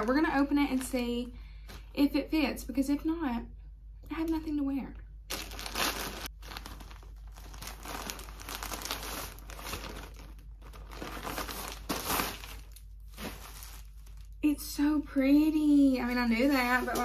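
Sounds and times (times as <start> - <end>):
plastic packaging crinkling: 0.0 - 1.9, 5.3 - 14.4, 16.0 - 17.0.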